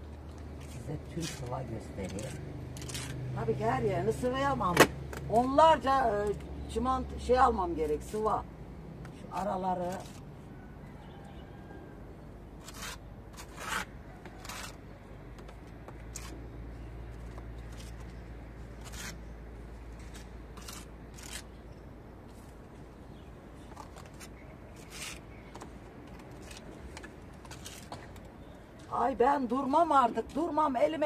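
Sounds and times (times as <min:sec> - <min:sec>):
trowel scraping plaster on wall: 0:12.6 - 0:14.8, 0:18.8 - 0:19.2, 0:20.1 - 0:21.5.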